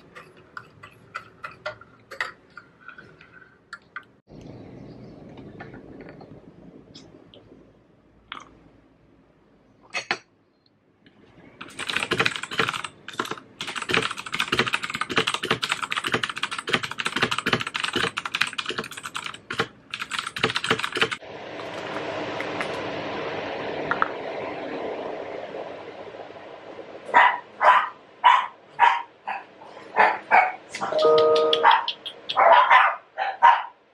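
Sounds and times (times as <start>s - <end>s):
fast mechanical keyboard typing: 11.6s - 21.9s.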